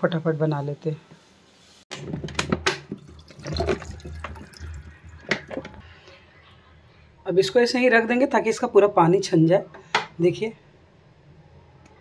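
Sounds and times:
wet pieces knocking and splashing: 0:01.9 - 0:05.8.

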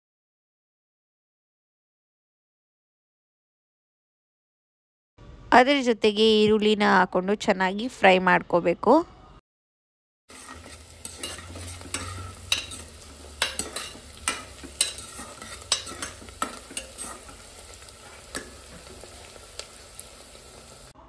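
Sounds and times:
spoon scraping and clinking pot: 0:10.3 - 0:20.9
onions sizzling in oil: 0:10.3 - 0:21.0.

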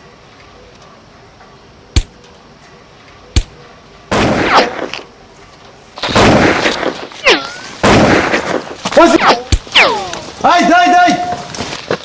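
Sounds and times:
rifle shots: 0:03.4 - 0:05.0, 0:06.0 - 0:07.1, 0:07.8 - 0:09.9
rapid rifle fire: 0:06.0 - 0:07.0, 0:07.8 - 0:08.8.

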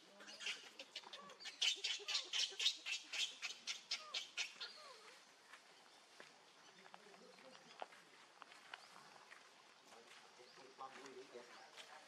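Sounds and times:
baby monkey squawking calls: 0:00.3 - 0:05.2.

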